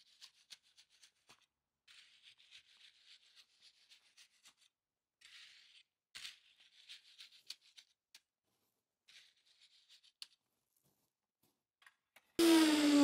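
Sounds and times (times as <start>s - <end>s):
rake scraping through wet concrete: 0.0s - 4.7s.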